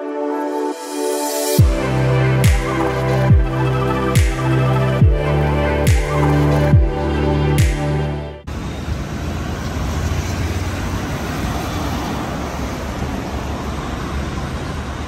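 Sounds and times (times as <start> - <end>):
background music: 0.0 - 8.5
cars driving past: 8.5 - 15.0.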